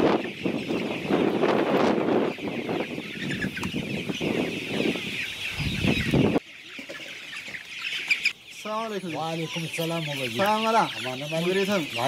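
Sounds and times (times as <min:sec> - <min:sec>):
chickens clucking: 0:00.0 - 0:12.0.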